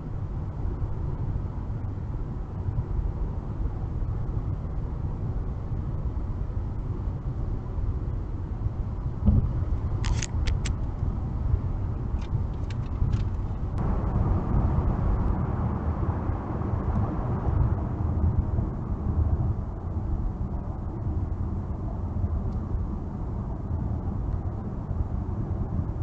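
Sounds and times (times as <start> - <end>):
car road and engine rumble: 0.0 - 26.0
thump: 9.2 - 9.5.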